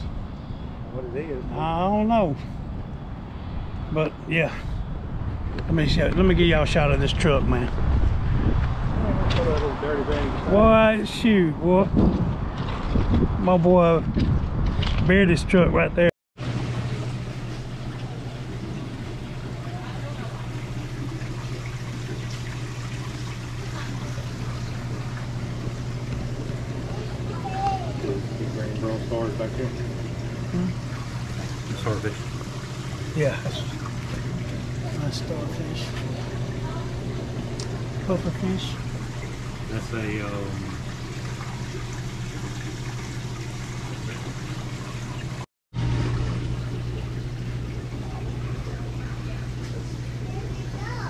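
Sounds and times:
steady low hum: 13.2 - 51.0
water trickling and splashing: 16.4 - 51.0.

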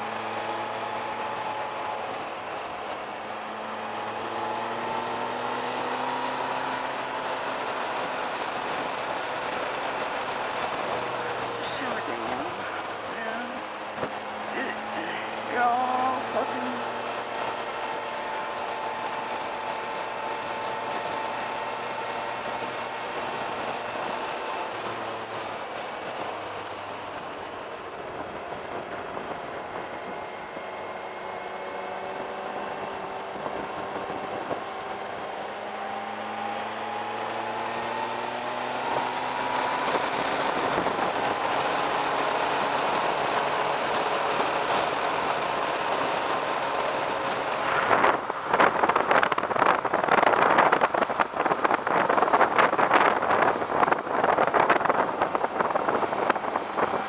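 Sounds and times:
wind buffeting microphone: 39.8 - 57.0.

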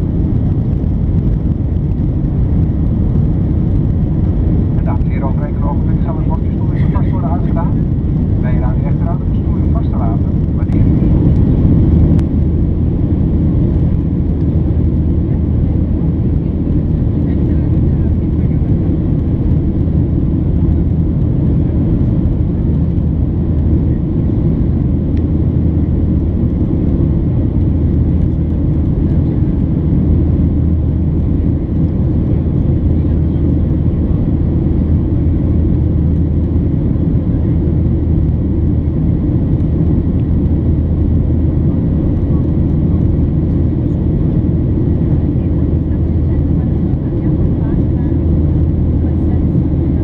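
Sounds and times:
jet engine drone: 0.0 - 50.0.

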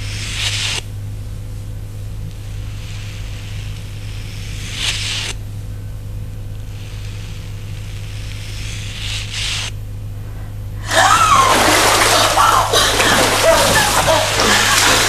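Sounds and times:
low hum: 0.0 - 15.0
water splashing in a bathtub: 10.8 - 15.0
wavering voice-like sound: 10.8 - 15.0.

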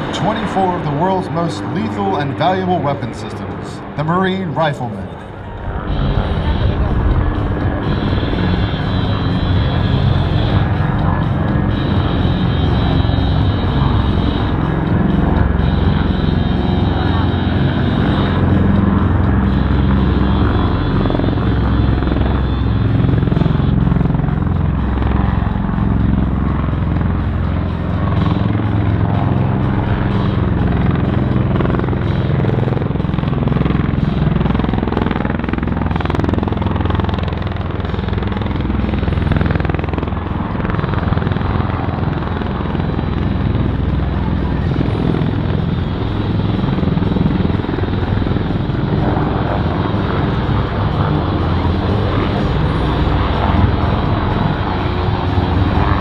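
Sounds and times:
helicopter rotor and engine drone: 0.0 - 56.0
music playing: 0.0 - 56.0.

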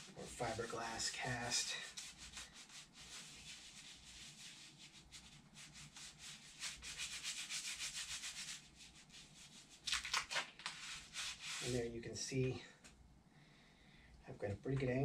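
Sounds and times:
gloved hands rubbing a cast: 0.0 - 12.4.

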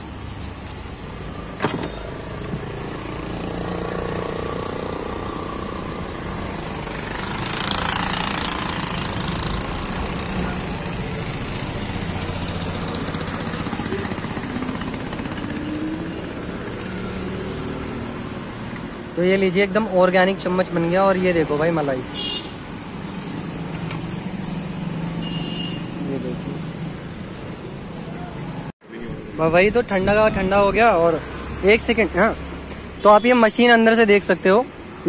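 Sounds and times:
traffic rumble: 0.0 - 35.0
vehicle passing: 1.2 - 22.1.

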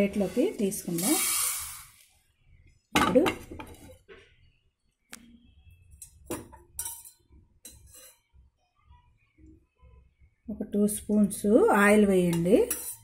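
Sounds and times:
metal cookware clinking: 3.0 - 4.0, 6.0 - 8.3, 12.2 - 13.0.

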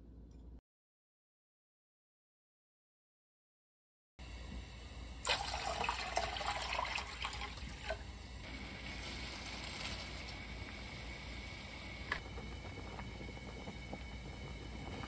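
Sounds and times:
water at a rolling boil: 4.2 - 15.0.

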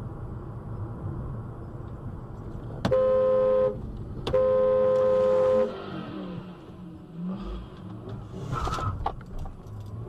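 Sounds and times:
road and engine noise: 0.0 - 10.0
car horn: 2.8 - 5.8.

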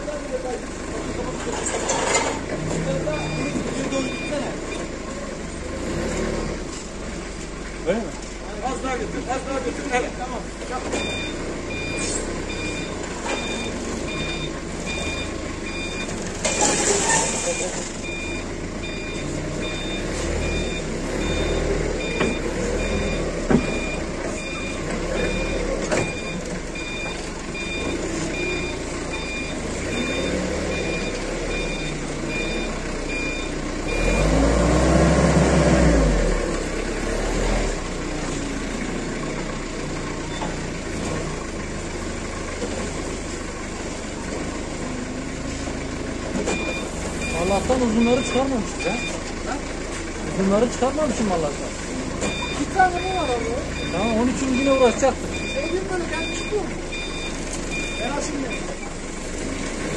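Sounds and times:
forklift engine running: 0.0 - 59.9
forklift reversing beeper: 2.9 - 5.0, 10.8 - 34.8, 40.0 - 40.7, 44.9 - 49.3, 52.2 - 59.1.

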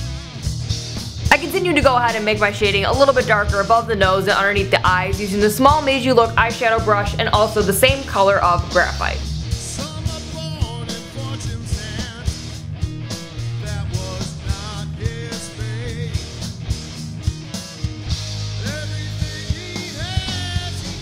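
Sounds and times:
background music with steady beat: 0.0 - 21.0.

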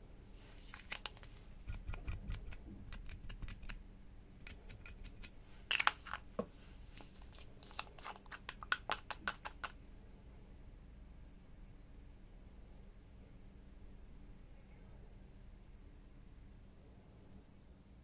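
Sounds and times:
plastic bottles clicking and tapping: 5.7 - 6.2.

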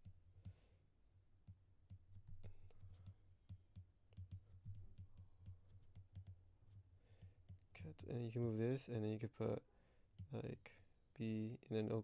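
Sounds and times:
stylus tapping on glass screen: 1.4 - 7.7.

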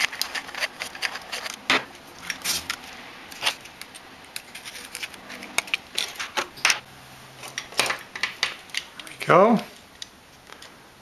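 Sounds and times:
screwdriver scraping plastic: 0.0 - 1.6.

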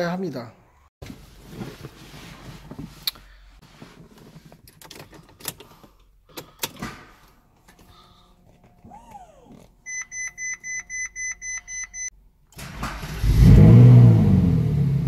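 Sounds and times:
rustling and handling noise: 1.0 - 6.0.

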